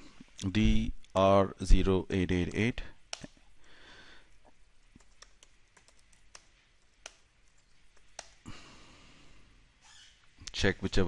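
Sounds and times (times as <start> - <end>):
keyboard typing: 4.8 - 8.4.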